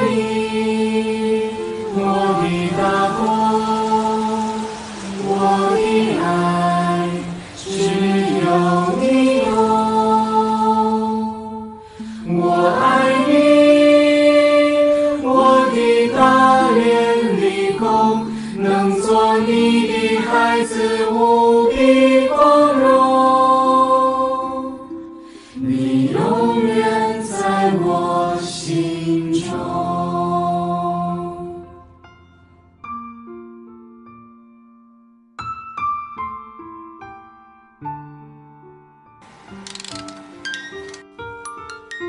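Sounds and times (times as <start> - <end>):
mixed choir singing in harmony: 0.0 - 31.8.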